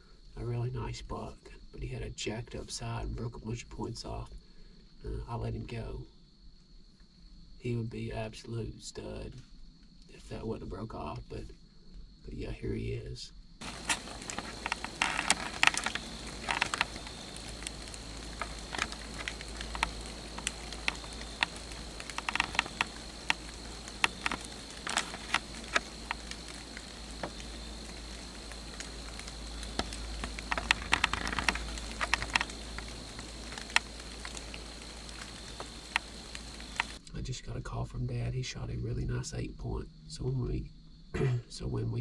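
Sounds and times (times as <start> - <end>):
deer walking through dry leaves: 13.6 - 37.0.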